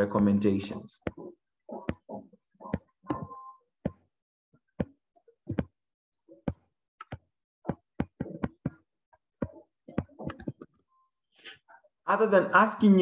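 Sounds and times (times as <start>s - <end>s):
stylus tapping on tablet: 1.0s - 4.0s, 4.8s - 5.7s, 6.5s - 8.8s, 9.4s - 10.8s.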